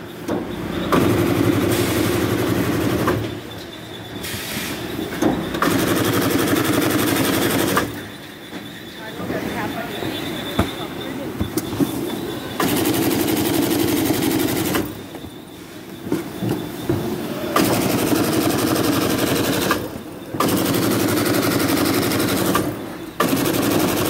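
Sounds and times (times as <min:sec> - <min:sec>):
stitching machine rattling: 0:05.5 - 0:08.0, 0:12.6 - 0:15.0, 0:17.5 - 0:24.0.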